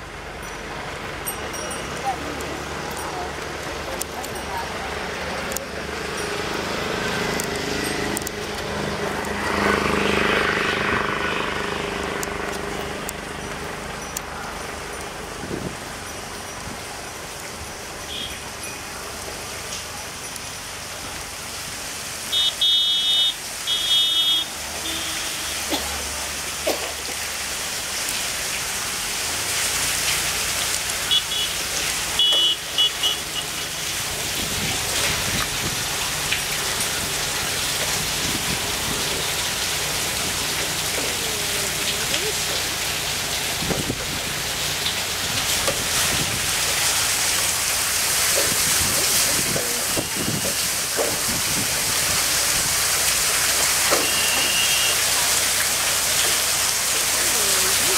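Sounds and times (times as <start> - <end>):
water pattering and splashing: 0.0 - 57.9.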